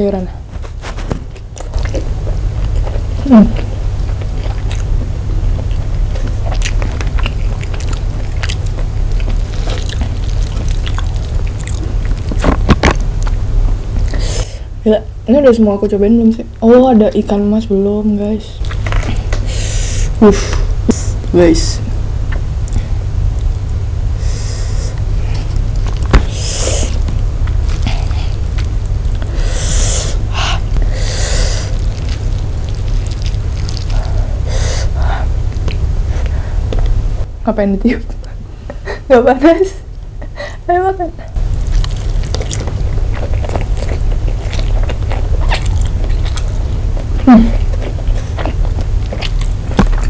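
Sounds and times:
steady low hum: 0.0 - 50.0
chewing: 0.6 - 13.4, 18.6 - 19.4, 25.3 - 29.4, 31.6 - 37.0, 41.3 - 50.0
short noisy breaths: 19.4 - 21.0, 29.3 - 31.8.

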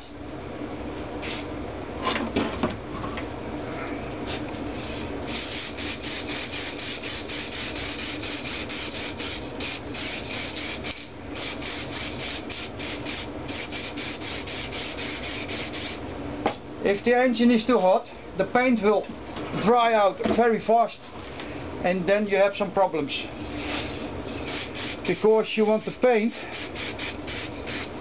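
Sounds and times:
steady low hum: 0.0 - 28.0
spray paint can hissing: 4.8 - 16.0, 23.6 - 25.0, 26.5 - 27.9.

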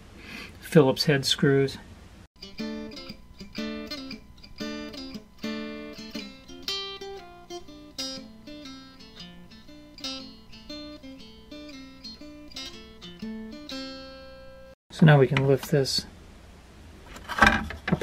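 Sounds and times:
acoustic guitar chords: 2.4 - 14.7.

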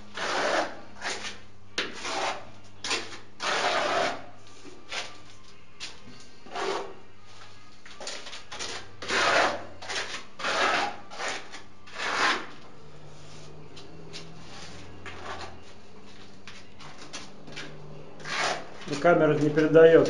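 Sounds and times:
scraping and rubbing strokes: 8.3 - 20.0.

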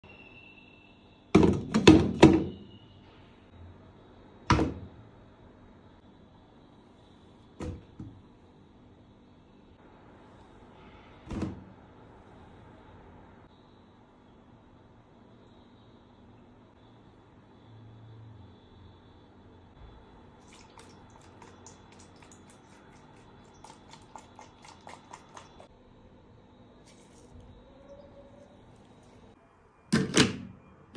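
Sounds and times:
milk glugging into a plastic jug: 20.4 - 25.7.

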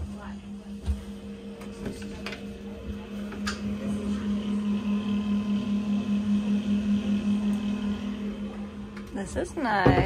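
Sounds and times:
pulsing low drone: 0.0 - 10.0
steady mechanical hum: 0.0 - 10.0.

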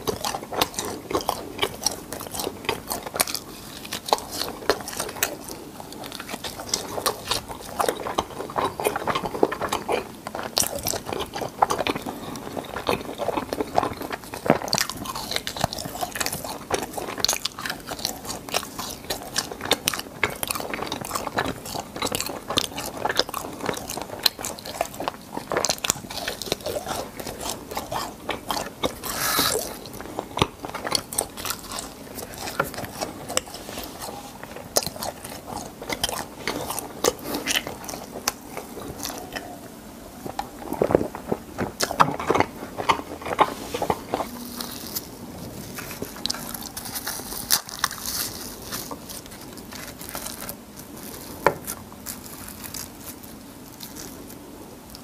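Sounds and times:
crunching and chewing: 0.0 - 55.0
wet mouth sounds: 24.1 - 50.0.

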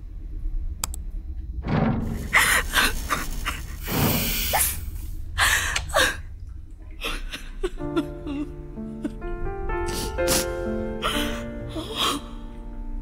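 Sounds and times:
low steady hum: 0.0 - 9.8
music: 0.1 - 13.0.

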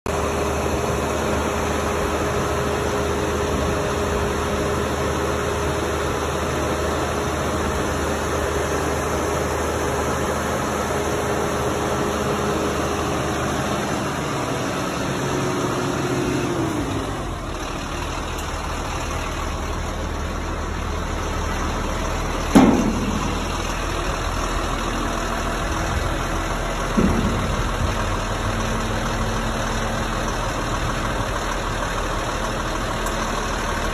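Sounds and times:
truck engine idling: 0.1 - 33.9
hydraulic hum: 17.4 - 33.9
sharp clunk: 22.5 - 23.8, 26.9 - 28.2.

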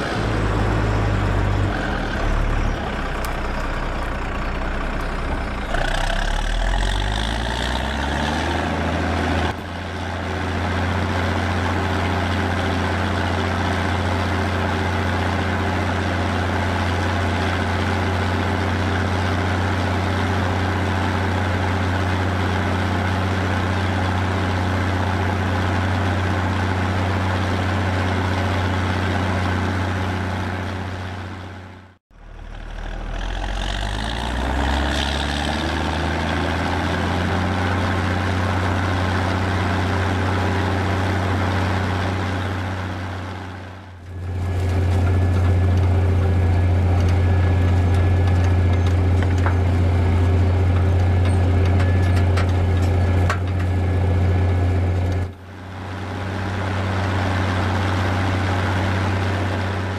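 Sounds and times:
steady engine-like hum: 0.0 - 59.9
tractor diesel engine working: 0.0 - 59.9.

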